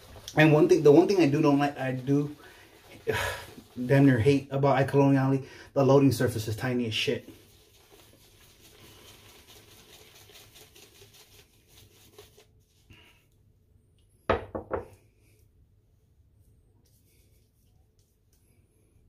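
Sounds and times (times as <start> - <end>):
shaving brush scrubbing soap: 0.0 - 13.1.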